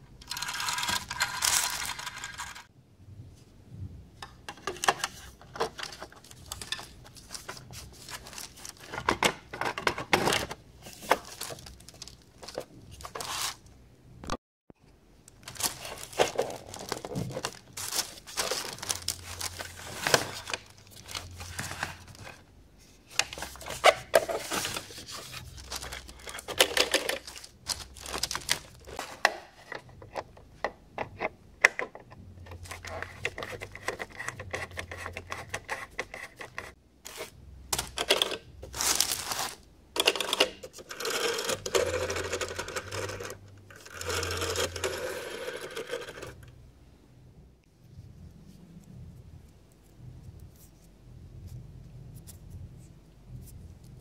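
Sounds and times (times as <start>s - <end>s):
telephone parts clicking and rattling: 40.0s - 46.4s.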